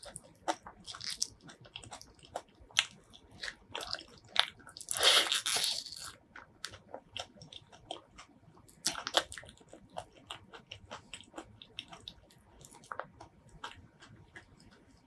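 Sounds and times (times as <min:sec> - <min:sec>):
close chewing mouth clicks: 0:06.4 - 0:15.0.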